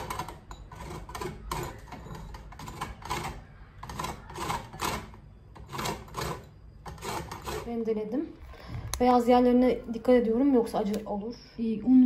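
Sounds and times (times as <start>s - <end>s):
lemon peel scraping on grater: 0.0s - 7.9s.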